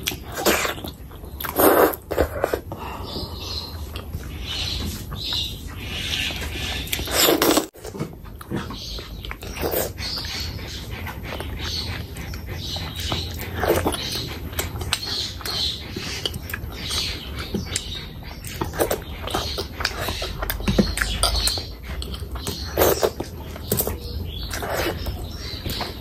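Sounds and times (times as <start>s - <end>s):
wet chewing and lip smacking: 0.0s - 26.0s
bite and slurp: 6.2s - 25.9s.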